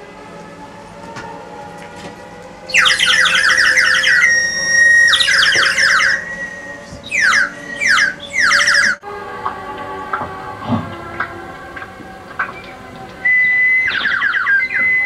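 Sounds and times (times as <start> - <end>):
bird whistle trilling: 2.7 - 9.0, 12.4 - 15.0.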